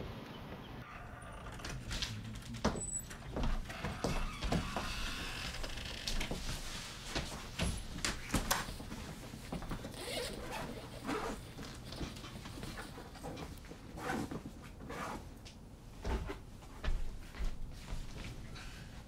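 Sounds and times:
zipper pulled: 0:09.8 - 0:11.9.

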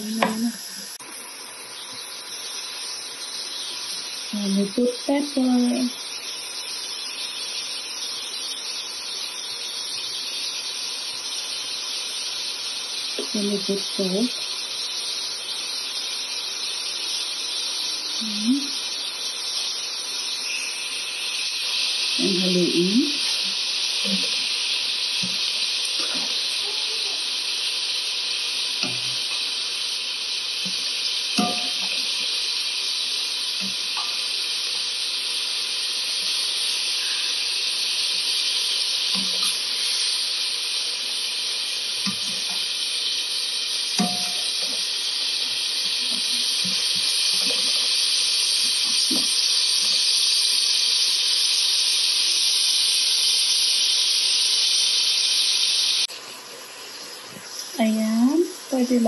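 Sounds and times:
meat and onion sizzling in pan: 0:00.0 - 0:59.0
spatula scraping and tapping: 0:28.8 - 0:29.4, 0:31.4 - 0:32.0, 0:42.0 - 0:42.6, 0:44.0 - 0:44.8.

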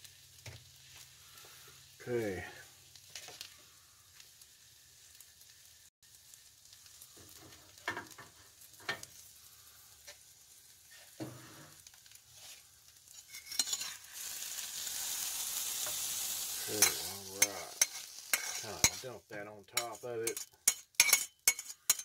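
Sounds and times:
omelet sizzling in a frying pan: 0:00.0 - 0:22.0
metal spatula scraping a pan: 0:03.0 - 0:03.6, 0:10.0 - 0:22.0
loud steady hiss: 0:14.6 - 0:19.3.

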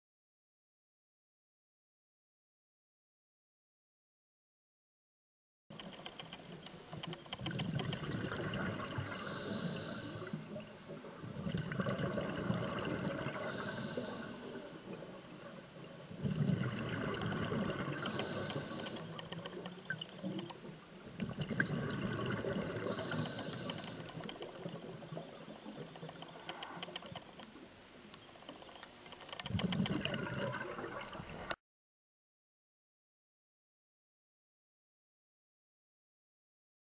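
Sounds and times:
bubbling exhaled air underwater: 0:07.1 - 0:27.4, 0:29.4 - 0:31.6
air hissing through regulator: 0:09.0 - 0:10.5, 0:13.2 - 0:14.9, 0:17.9 - 0:19.3, 0:22.8 - 0:24.2.

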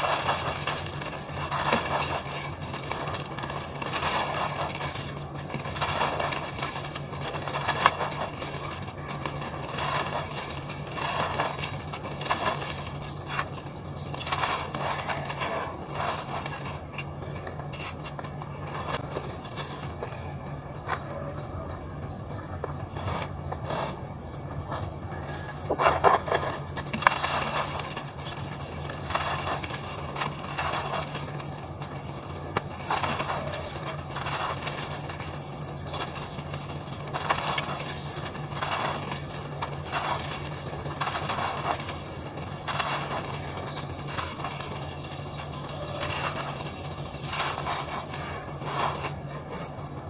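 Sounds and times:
crumbs falling on dusty floor: 0:00.0 - 0:20.4, 0:25.2 - 0:50.0
cement chunks crumbled by hand: 0:00.0 - 0:21.6, 0:22.5 - 0:50.0.

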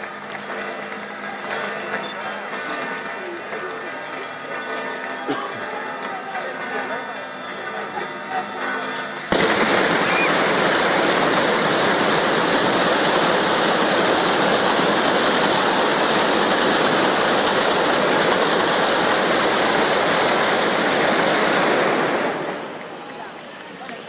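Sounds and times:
firecrackers crackling: 0:00.0 - 0:24.0
crowd cheering: 0:05.6 - 0:24.0.

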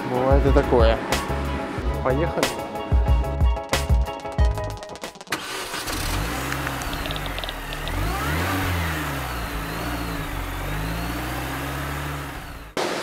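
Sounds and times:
car engine revving: 0:05.4 - 0:12.8.

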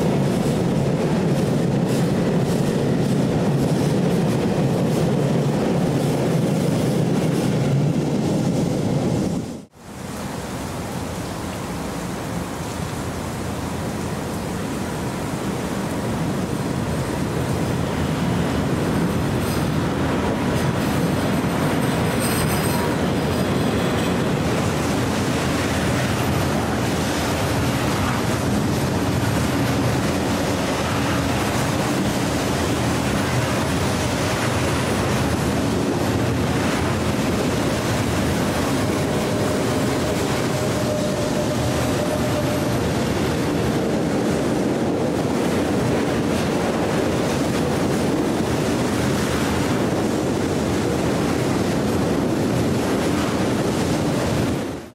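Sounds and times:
train wheels on rail: 0:00.0 - 0:54.9
thin wheel squeal: 0:39.2 - 0:42.8.

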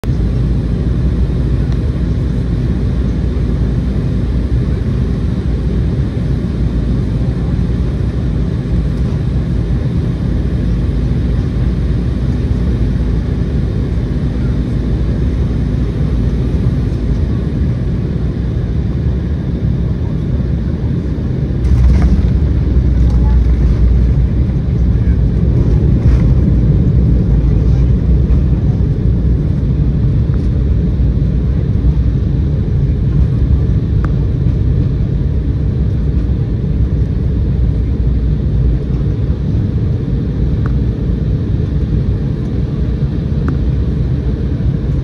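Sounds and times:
airplane cabin drone: 0:00.0 - 0:45.0.

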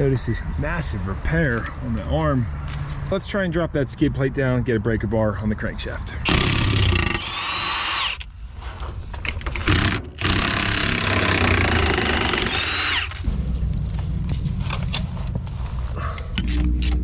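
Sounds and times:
power tool motor whine: 0:06.3 - 0:08.2, 0:09.6 - 0:13.2.

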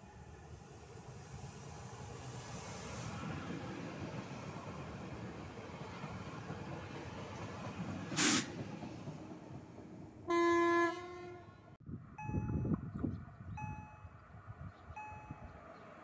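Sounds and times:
electric train running on rails: 0:00.0 - 0:12.9, 0:13.5 - 0:16.0
train horn blast: 0:10.3 - 0:11.7.

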